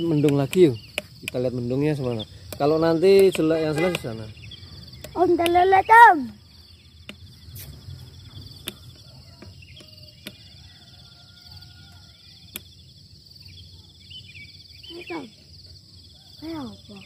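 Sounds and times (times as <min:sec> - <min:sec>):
sharp clicks: 0:00.0 - 0:04.2, 0:05.0 - 0:06.4, 0:07.0 - 0:07.6, 0:08.3 - 0:09.0
insects trilling: 0:00.0 - 0:17.0.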